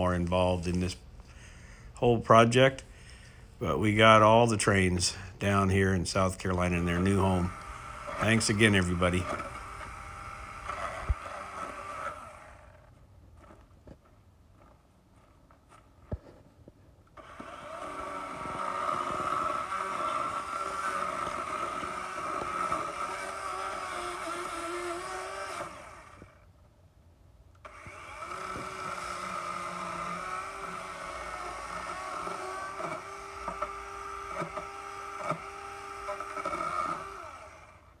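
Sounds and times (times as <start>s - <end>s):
electric chainsaw cutting wood: 6.2s - 13.6s, 17.2s - 26.5s, 27.6s - 38.0s.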